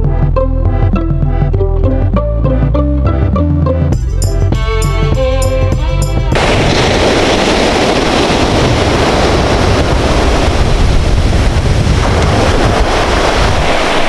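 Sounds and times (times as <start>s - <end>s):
wind buffeting microphone: 6.2s - 14.0s
small waves breaking on beach: 6.4s - 14.0s.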